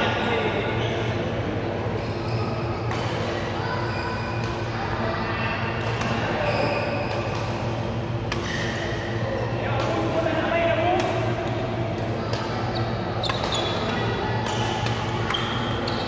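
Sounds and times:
rackets striking shuttlecocks: 0:05.8 - 0:06.4, 0:07.1 - 0:08.9, 0:10.9 - 0:16.0.

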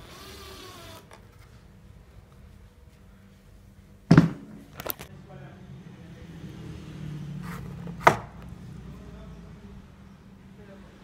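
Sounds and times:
loud thump on workbench: 0:04.1 - 0:04.6.

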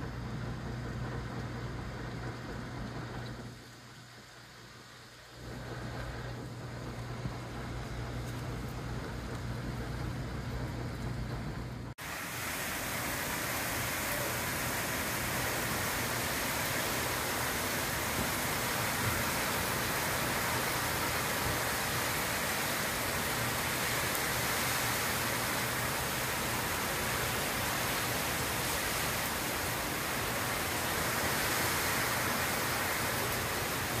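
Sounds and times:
heavy rain pouring: 0:00.0 - 0:34.0.

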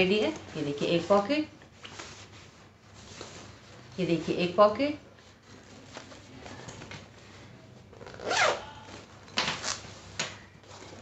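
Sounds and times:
handbag zipper being pulled: 0:08.0 - 0:08.6.

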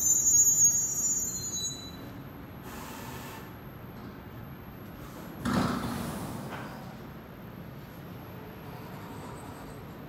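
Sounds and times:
train brakes squealing: 0:00.0 - 0:03.5.

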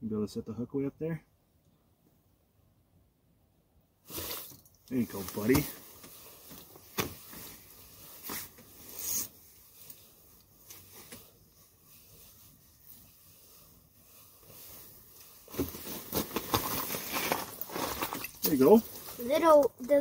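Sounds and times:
clothing rustling: 0:04.1 - 0:20.0.

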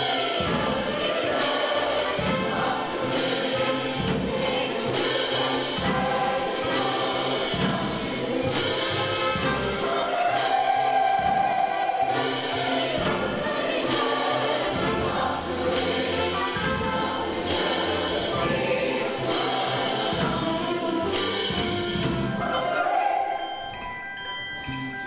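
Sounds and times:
chorus singing: 0:00.0 - 0:24.0
orchestral accompaniment: 0:00.0 - 0:25.0
high bell-like tones: 0:22.4 - 0:25.0.

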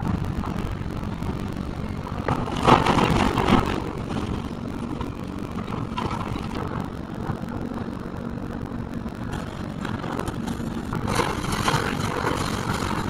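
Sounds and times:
excavator running: 0:00.0 - 0:13.0
debris crashing and cracking: 0:02.2 - 0:06.7, 0:09.3 - 0:13.0.

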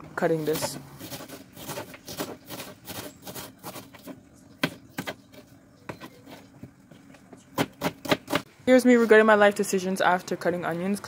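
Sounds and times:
knife chopping on cutting board: 0:07.6 - 0:08.5.

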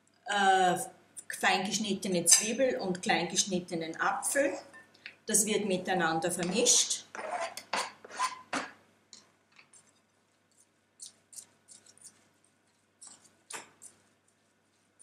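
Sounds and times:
fork scraping cutting board: 0:06.4 - 0:08.7.

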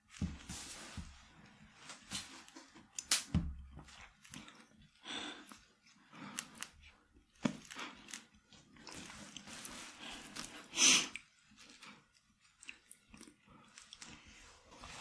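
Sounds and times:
soft breathing: 0:04.0 - 0:12.5.

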